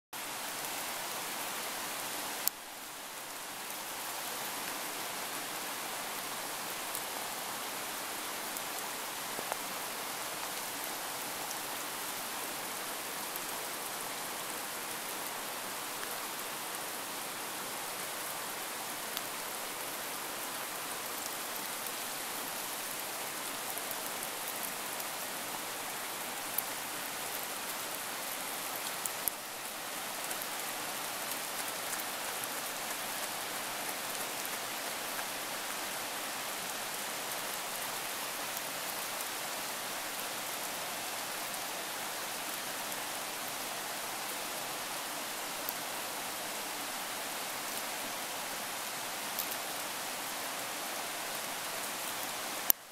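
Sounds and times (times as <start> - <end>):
running water hiss: 0.2 - 52.9.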